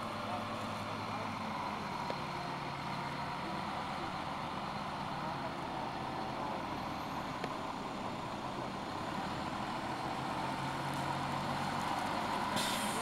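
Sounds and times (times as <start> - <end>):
diesel engine running at low revs: 0.0 - 13.0.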